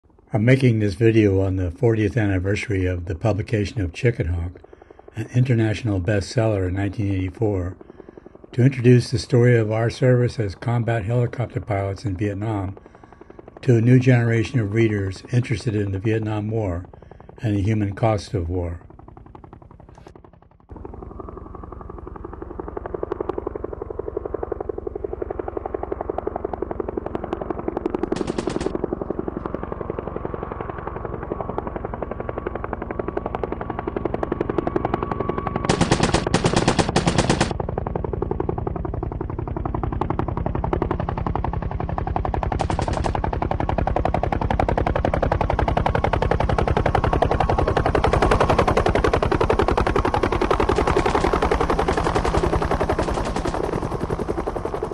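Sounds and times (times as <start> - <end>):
helicopter whine: 0.1 - 54.9
helicopter rotor thumping: 10.6 - 17.4, 18.0 - 54.9
bright rattling bursts: 28.0 - 28.8, 35.7 - 37.6, 42.6 - 43.2.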